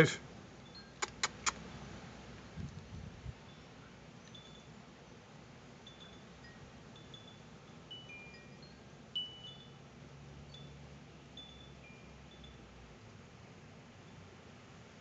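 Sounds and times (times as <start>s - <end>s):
faint wind chime ringing: 0.6s - 1.0s, 3.4s - 13.0s, 14.0s - 14.4s.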